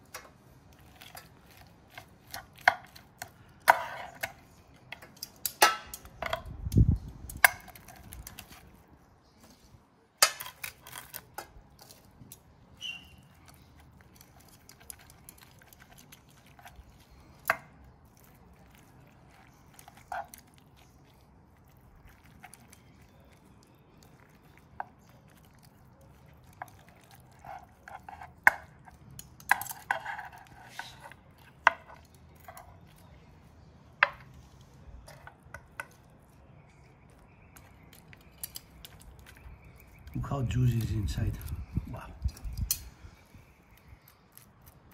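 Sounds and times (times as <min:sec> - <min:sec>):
cutlery scraping on wooden board: 0:03.7 - 0:04.4, 0:29.5 - 0:32.7.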